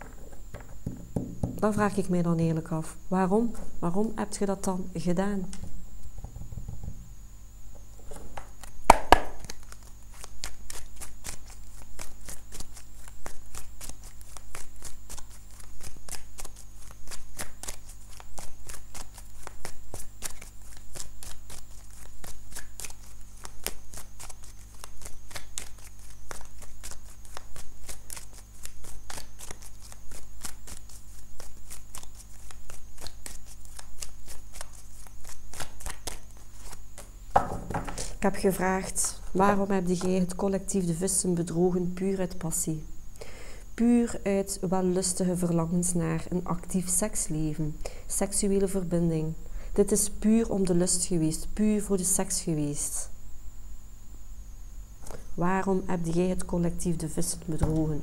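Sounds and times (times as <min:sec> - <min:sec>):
cards being shuffled: 0:08.0 - 0:38.2.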